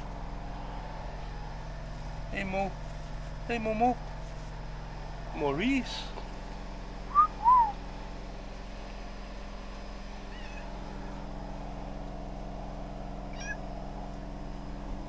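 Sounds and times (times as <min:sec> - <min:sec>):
cat chirping calls: 0:10.3 - 0:10.7, 0:13.3 - 0:13.7
cat meowing: 0:10.3 - 0:10.7, 0:13.3 - 0:13.7.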